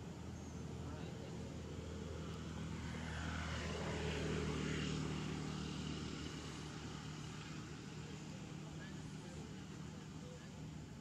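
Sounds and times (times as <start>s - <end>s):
engine drone of passing motor: 0.0s - 11.0s.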